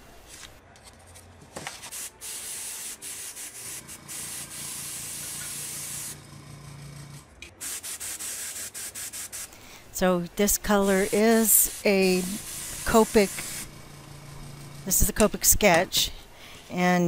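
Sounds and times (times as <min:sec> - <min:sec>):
airbrush spraying hiss: 0:01.9 - 0:06.2, 0:07.6 - 0:09.8, 0:10.6 - 0:13.8.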